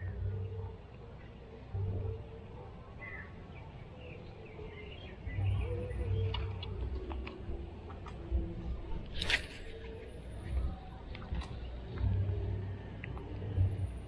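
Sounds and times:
small birds chirping: 0.0s - 10.0s
steady low hum: 0.0s - 14.0s.

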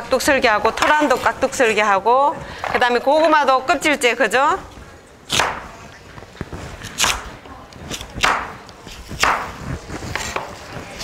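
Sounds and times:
knife chopping on cutting board: 7.9s - 10.5s.

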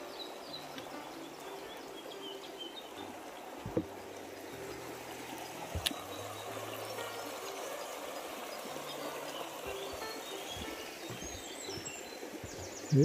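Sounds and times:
river rushing over stones: 0.0s - 13.0s
knocks: 3.6s - 4.0s, 9.7s - 12.8s.

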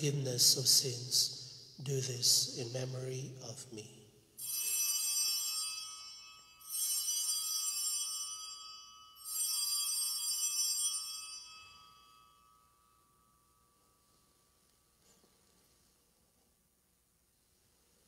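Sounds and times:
altar bells ringing: 4.4s - 15.9s.

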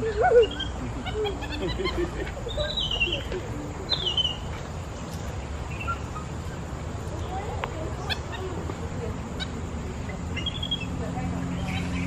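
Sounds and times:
descending whistled calls: 0.0s - 4.5s, 5.6s - 7.3s, 9.4s - 12.0s
high chirping calls: 0.0s - 12.0s.

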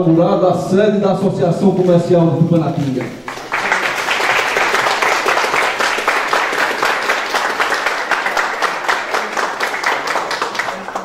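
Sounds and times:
crowd applauding: 2.8s - 11.0s.

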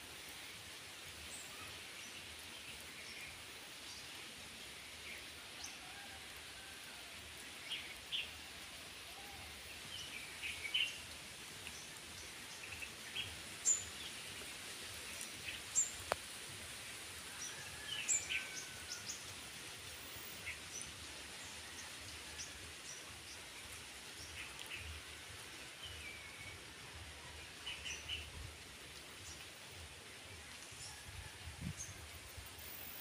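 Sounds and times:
outdoor background hiss: 0.0s - 33.0s.

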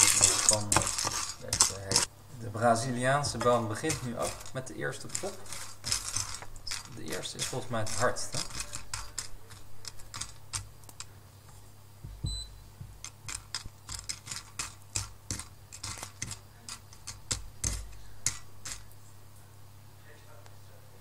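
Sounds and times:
coffee beans cracking: 0.0s - 2.1s, 3.3s - 11.2s.

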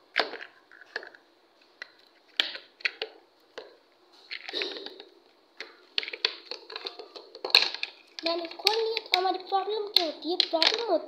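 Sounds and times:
plastic toy clicks and creaks: 6.0s - 11.0s.

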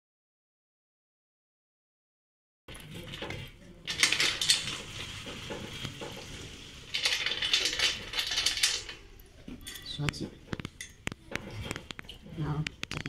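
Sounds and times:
metal parts clattering and clinking: 2.7s - 12.0s.

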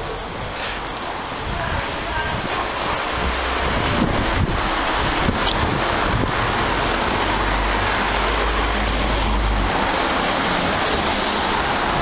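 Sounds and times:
wind buffeting rumble: 1.2s - 8.7s.

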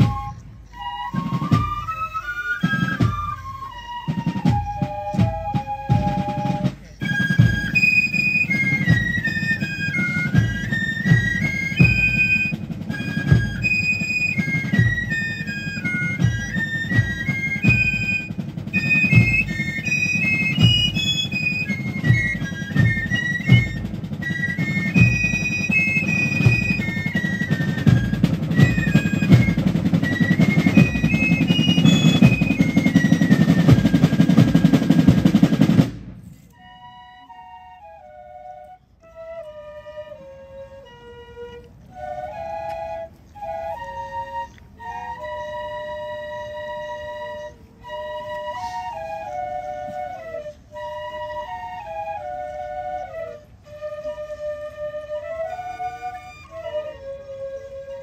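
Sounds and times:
snare and bass drum beats: 0.0s - 36.3s
shrill fifes playing melody: 0.0s - 58.0s.

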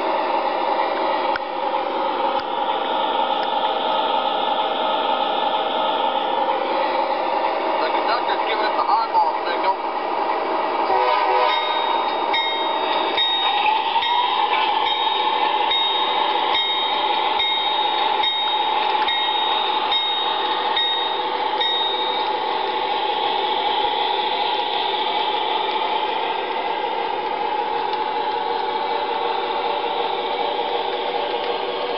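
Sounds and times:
model train rolling on track: 0.0s - 31.9s
model locomotive bell ringing: 11.4s - 22.5s.

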